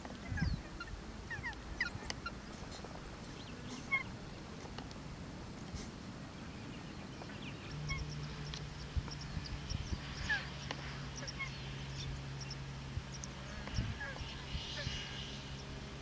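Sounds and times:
small birds chirping: 0:00.0 - 0:05.0, 0:05.6 - 0:16.0
steady low hum: 0:00.0 - 0:16.0
geese calling: 0:00.1 - 0:04.2, 0:07.6 - 0:15.7.

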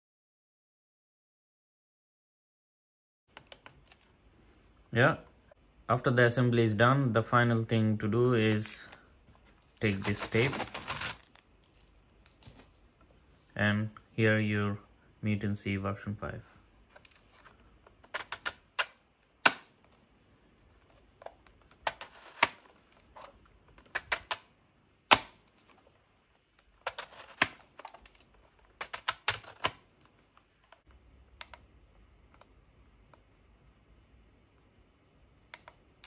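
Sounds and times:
plastic slider scraping: 0:26.8 - 0:29.8.

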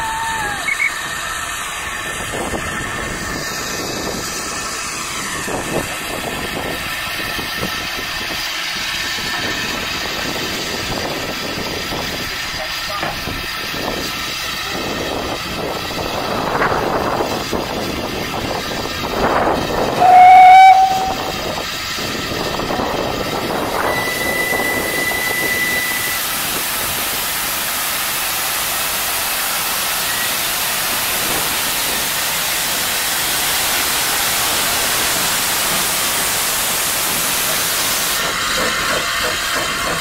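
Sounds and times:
steam whistle blast: 0:00.0 - 0:01.1, 0:19.9 - 0:21.5, 0:23.7 - 0:26.3
steam hissing: 0:00.0 - 0:40.0.

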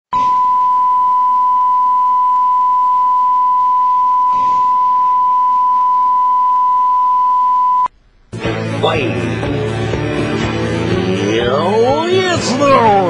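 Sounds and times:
steady test tone: 0:00.2 - 0:07.9.

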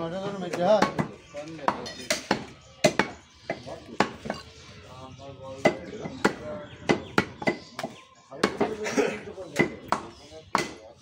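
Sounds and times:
voices talking: 0:00.0 - 0:11.0
cleaver chopping on wooden block: 0:00.8 - 0:04.4, 0:09.6 - 0:10.8.

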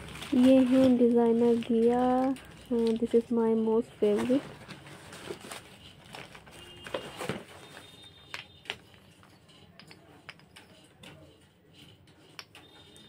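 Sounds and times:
paper wrapping rustling: 0:00.0 - 0:09.0.

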